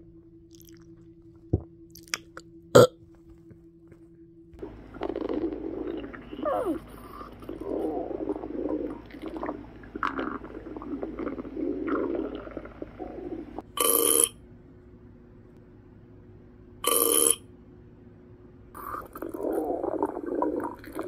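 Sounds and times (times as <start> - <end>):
faint low hum: 0.0 - 21.0
stomach gurgling and rumbling: 4.6 - 14.3, 18.8 - 21.0.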